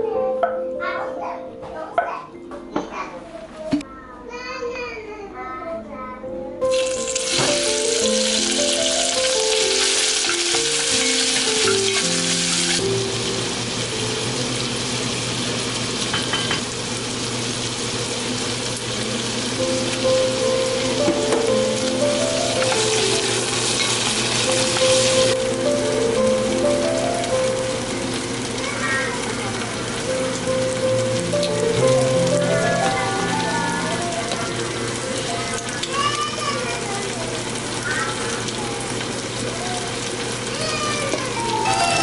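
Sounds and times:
gentle background music: 0:00.0 - 0:03.9, 0:04.6 - 0:15.0, 0:19.5 - 0:36.8, 0:41.3 - 0:42.0
meat sizzling in oil: 0:06.7 - 0:42.0.

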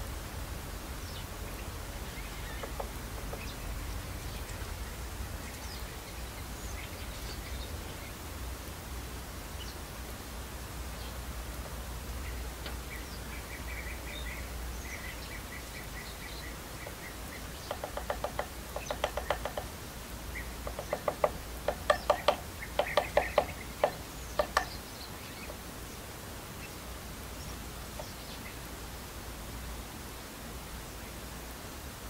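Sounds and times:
harsh bird chatter: 0:14.9 - 0:19.7, 0:20.3 - 0:25.6
high bird chirps: 0:20.4 - 0:25.5.

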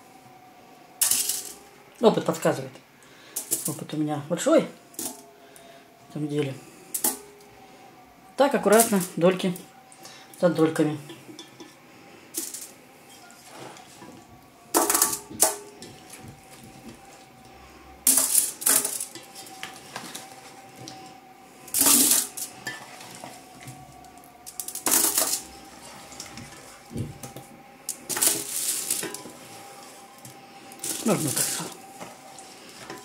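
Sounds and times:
aluminium foil crinkling: 0:08.6 - 0:10.2, 0:12.3 - 0:33.0.

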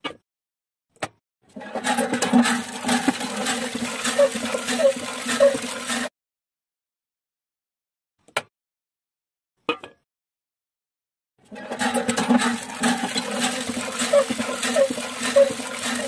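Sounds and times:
water gushing into metal bucket: 0:01.6 - 0:06.1, 0:11.5 - 0:16.0.

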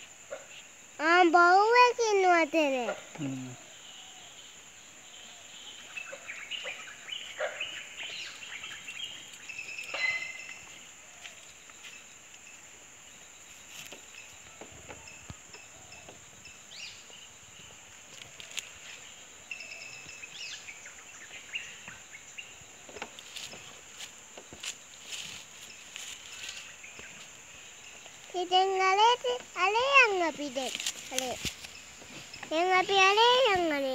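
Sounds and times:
high-pitched insect drone: 0:00.0 - 0:07.1, 0:08.1 - 0:33.9
birds chirping: 0:02.9 - 0:33.9
soft ticks and rustles: 0:13.5 - 0:16.3, 0:18.1 - 0:19.1, 0:22.9 - 0:27.4, 0:30.4 - 0:33.8.

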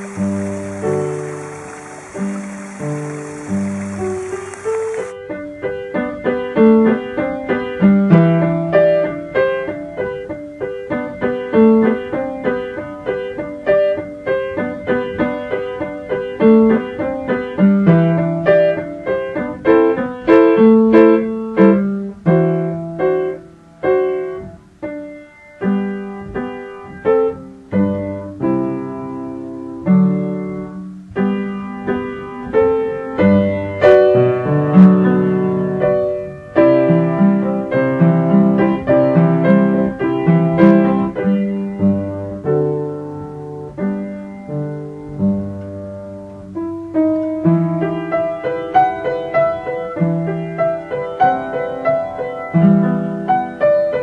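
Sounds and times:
piano playing notes and chords: 0:00.0 - 0:54.0.

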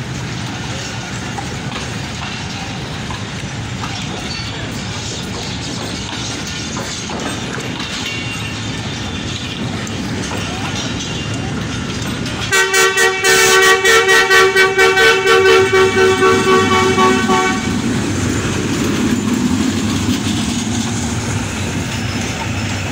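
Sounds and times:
train coaches rumbling past: 0:00.0 - 0:22.9
two-tone horn tooting: 0:12.5 - 0:17.8.

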